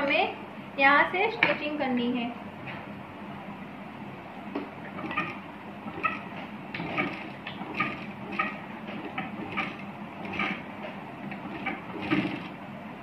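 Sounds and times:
sewing machine stitching: 0:04.9 - 0:12.6.

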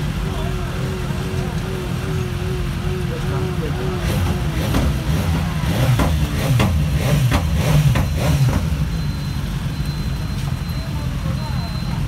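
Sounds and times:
motorcycle engines running: 0:00.0 - 0:12.0
motorcycle throttle revs: 0:00.2 - 0:09.2.

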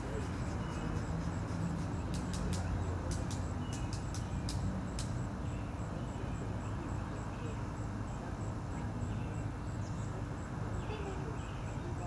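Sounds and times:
faint sharp high clicks: 0:02.1 - 0:05.2.

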